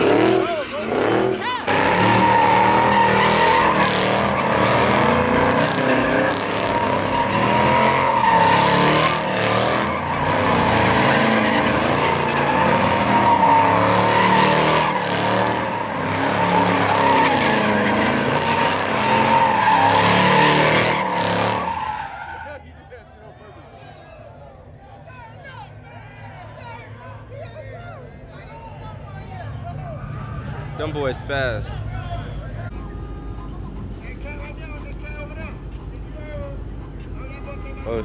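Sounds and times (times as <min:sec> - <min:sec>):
car engine revving hard: 0:00.0 - 0:22.0
tyres squealing: 0:00.0 - 0:22.6.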